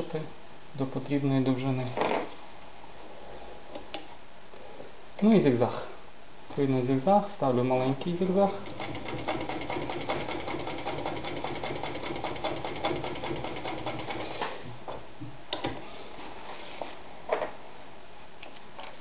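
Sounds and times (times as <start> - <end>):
sewing machine stitching: 8.5 - 14.5.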